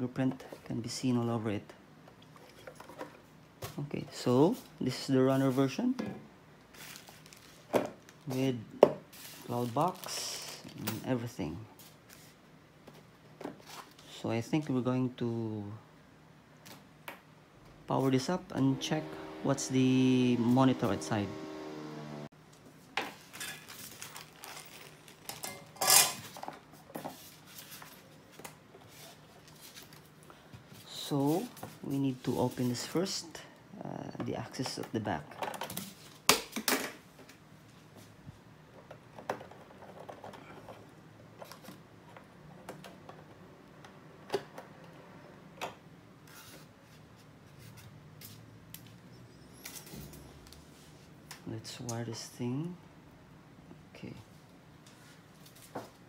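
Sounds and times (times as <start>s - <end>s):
hard items clattering: 23.1s - 27.2s.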